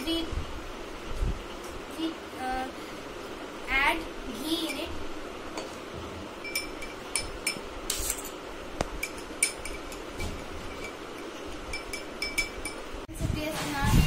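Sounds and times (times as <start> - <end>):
spoon clinking in glass: 6.4 - 8.4, 9.0 - 12.9.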